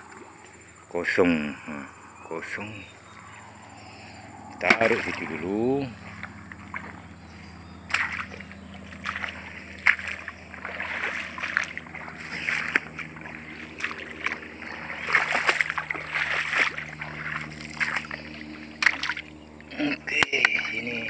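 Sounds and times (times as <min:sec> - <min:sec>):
footsteps splashing in water: 0:04.6 - 0:19.6.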